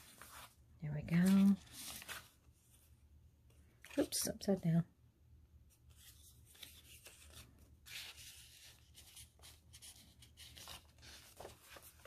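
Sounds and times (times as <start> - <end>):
paper pages rustling: 0.0 - 2.9, 5.7 - 12.0.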